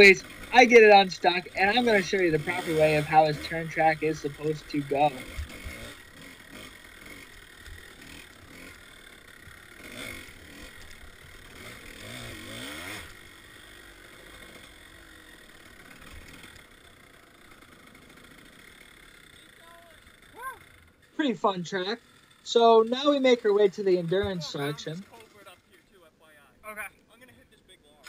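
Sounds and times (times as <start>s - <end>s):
faint dirt bike engine revving: 0.0s - 28.0s.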